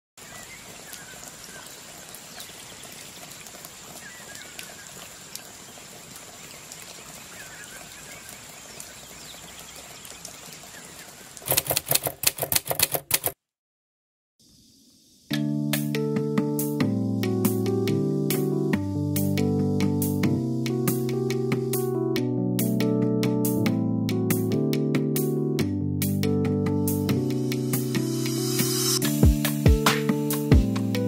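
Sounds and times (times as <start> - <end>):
rapid typewriter-like clicks: 11.4 - 13.4
high insect-like whine: 14.4 - 15.3.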